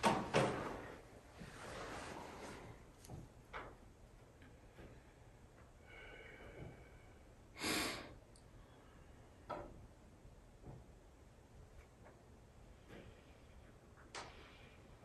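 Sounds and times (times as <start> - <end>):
person sniffing: 7.6 - 8.2.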